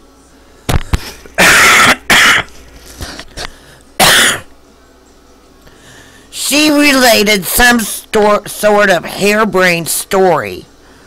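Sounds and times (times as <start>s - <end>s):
person coughing: 1.0s - 2.6s, 4.0s - 4.5s.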